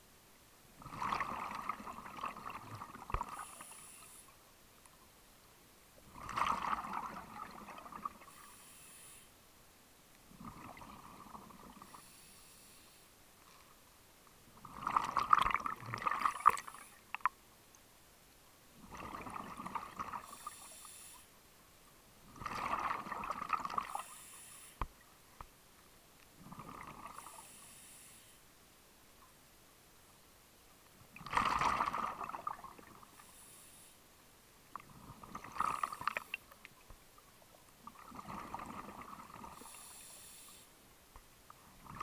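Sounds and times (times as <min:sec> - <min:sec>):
regulator hiss: 0:03.4 - 0:04.3, 0:08.3 - 0:09.3, 0:12.0 - 0:13.1, 0:20.3 - 0:21.3, 0:24.0 - 0:24.8, 0:27.3 - 0:28.4, 0:39.6 - 0:40.8
diver exhaling bubbles underwater: 0:31.2 - 0:33.0, 0:38.0 - 0:39.7.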